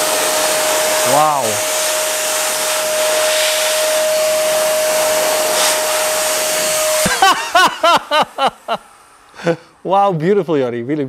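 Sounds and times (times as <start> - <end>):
air blower running: 0.0 - 10.1
man laughing: 7.0 - 9.7.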